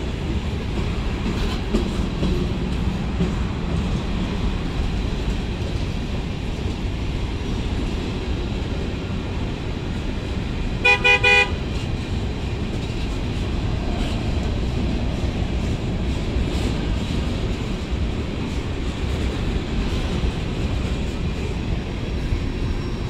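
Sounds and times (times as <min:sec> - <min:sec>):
freight train rumbling past: 0:00.0 - 0:23.0
train horn short beeps: 0:10.8 - 0:11.6.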